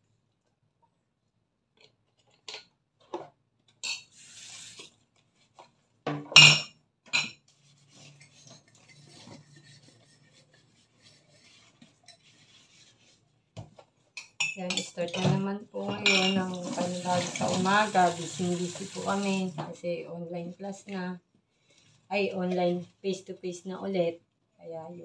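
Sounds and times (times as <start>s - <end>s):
sponge scrubbing a glass: 7.6s - 13.3s
dishes clinking in a metal sink: 14.2s - 17.8s.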